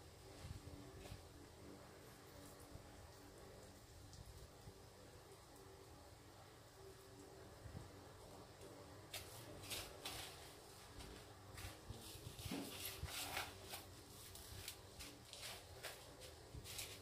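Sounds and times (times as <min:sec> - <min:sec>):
breadcrumbs rustling and crunching: 0:09.0 - 0:17.0.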